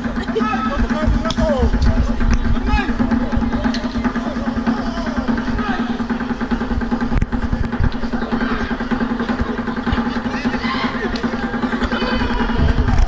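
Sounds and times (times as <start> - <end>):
people talking indistinctly: 0.0 - 13.0
steady low hum: 0.0 - 13.0.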